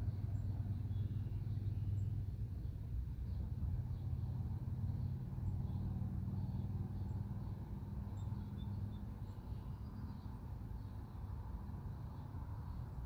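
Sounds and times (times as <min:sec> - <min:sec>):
low mechanical rumble with hum: 0:00.0 - 0:13.0
bird chirps: 0:08.1 - 0:11.2.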